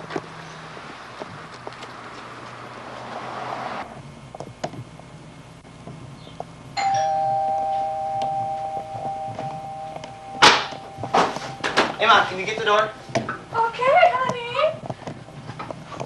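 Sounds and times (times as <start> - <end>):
two-tone doorbell chime: 6.8 - 12.2
loud thump: 10.4 - 12.0.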